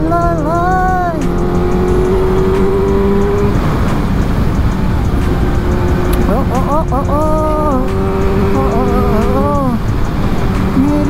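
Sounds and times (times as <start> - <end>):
person singing: 0.0 - 3.5, 6.1 - 11.0
motorcycle engine: 0.0 - 11.0.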